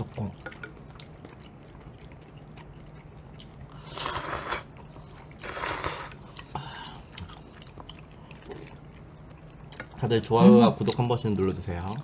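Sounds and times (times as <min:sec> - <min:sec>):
slurping noodles: 0:03.7 - 0:06.5.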